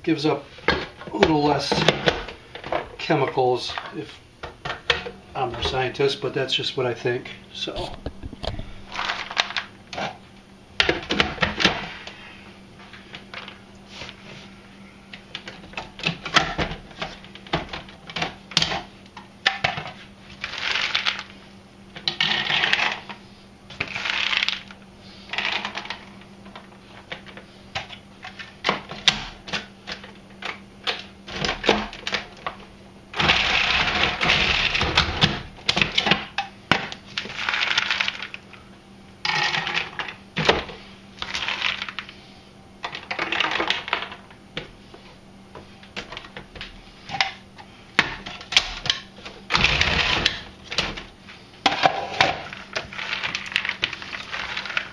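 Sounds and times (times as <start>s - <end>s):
berries rattling into plastic bowl: 7.8s - 9.7s, 37.2s - 38.4s, 41.2s - 42.0s, 52.2s - 54.9s
food processor chopping: 33.2s - 35.4s, 49.5s - 50.5s.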